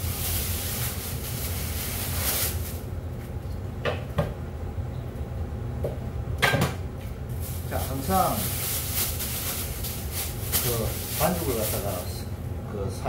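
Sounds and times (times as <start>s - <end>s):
plastic bag rustling: 0.0s - 2.9s, 7.3s - 12.3s
steady low hum: 0.0s - 13.0s.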